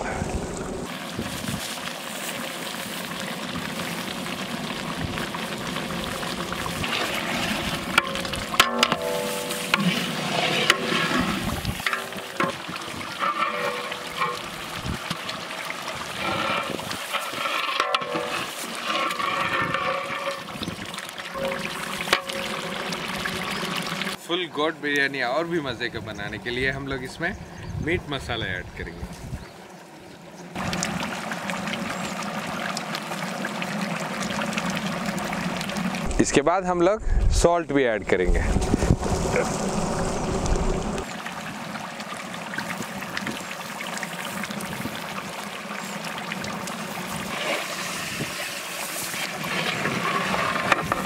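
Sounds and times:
broth boiling in a pot: 0:00.0 - 0:24.3, 0:30.5 - 0:36.4, 0:38.5 - 0:51.0
ladle stirring and splashing: 0:00.9 - 0:24.2.

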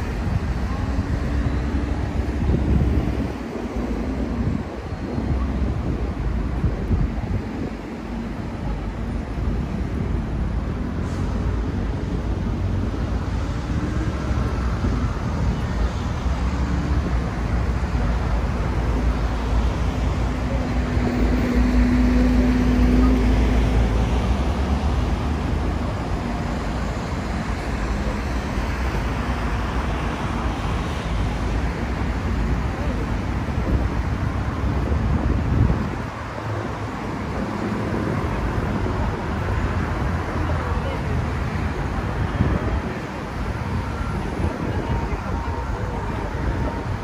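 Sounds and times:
traffic hum: 0:00.0 - 0:47.0.

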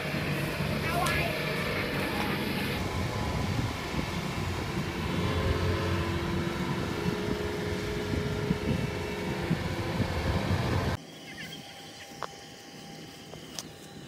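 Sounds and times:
combine harvester diesel engine: 0:00.0 - 0:11.0
faint steady whine: 0:00.0 - 0:14.0.

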